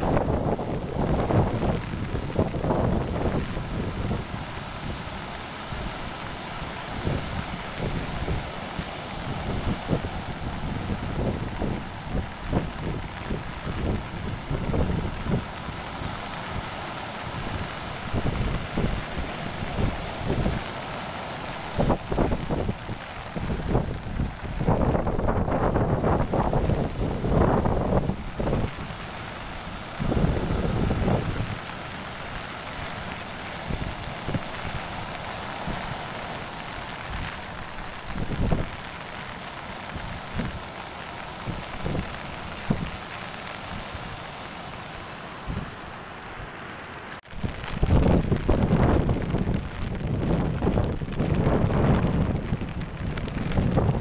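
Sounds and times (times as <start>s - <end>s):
wind buffeting microphone: 0.0s - 4.4s, 9.2s - 16.2s, 21.7s - 29.1s, 30.0s - 31.8s, 36.9s - 38.8s, 41.4s - 43.1s, 47.3s - 54.0s
surf breaking on beach: 0.0s - 54.0s.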